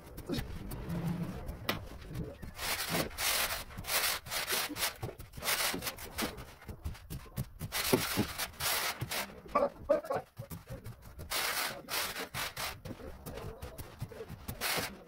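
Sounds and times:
straightedge scraping screed: 0:00.1 - 0:06.4, 0:07.7 - 0:09.4, 0:11.3 - 0:13.1, 0:14.5 - 0:15.0.

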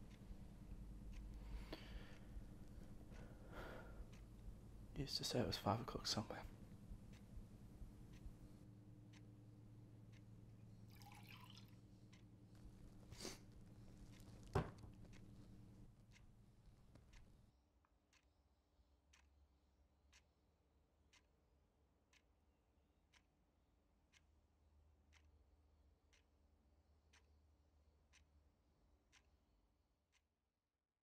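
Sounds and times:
clock ticking: 0:00.0 - 0:11.1, 0:11.8 - 0:17.5, 0:18.1 - 0:18.3, 0:19.1 - 0:19.4, 0:20.1 - 0:20.4, 0:21.1 - 0:21.4, 0:22.1 - 0:22.4, 0:23.1 - 0:23.3, 0:24.0 - 0:24.5, 0:25.1 - 0:26.4, 0:27.0 - 0:27.4, 0:28.0 - 0:28.4, 0:29.1 - 0:29.4.

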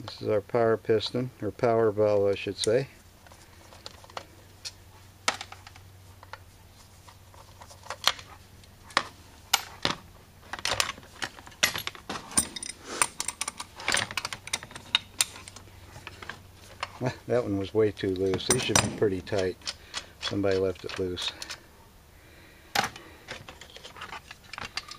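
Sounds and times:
metal parts clicking: 0:08.9 - 0:16.9, 0:18.1 - 0:21.6, 0:22.8 - 0:24.9.

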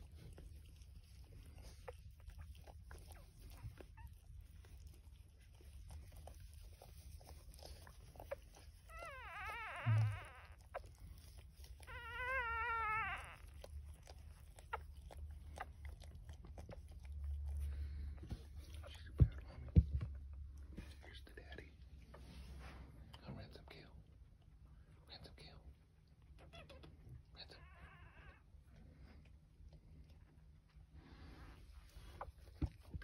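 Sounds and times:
puppy squealing: 0:07.5 - 0:15.8
soft clicks and rustles: 0:28.1 - 0:33.0.

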